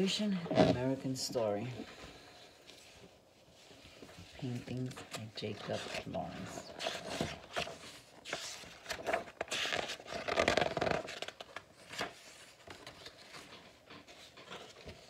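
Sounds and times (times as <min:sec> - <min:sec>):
book pages turning: 0:00.4 - 0:15.0
paper rustling and scraping: 0:00.4 - 0:15.0.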